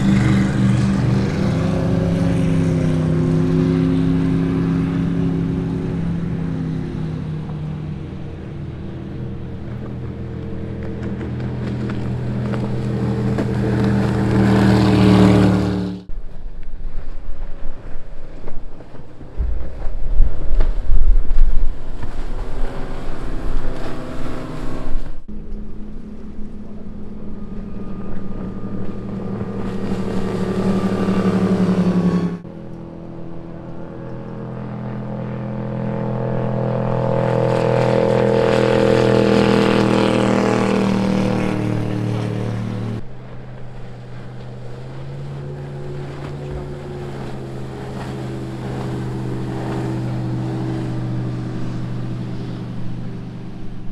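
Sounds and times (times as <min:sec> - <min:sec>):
wind buffeting microphone: 0:00.0 - 0:32.5
boat passing: 0:00.0 - 0:53.9
powerboat engines droning: 0:00.0 - 0:53.9.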